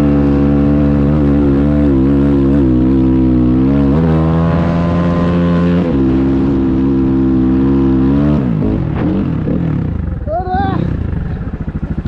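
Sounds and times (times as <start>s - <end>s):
dirt bike engine revving high: 0.0s - 12.0s.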